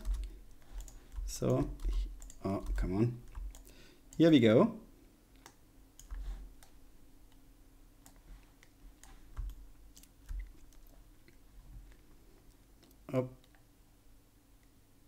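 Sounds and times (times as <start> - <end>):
keyboard keys clicking: 0.0 - 4.2.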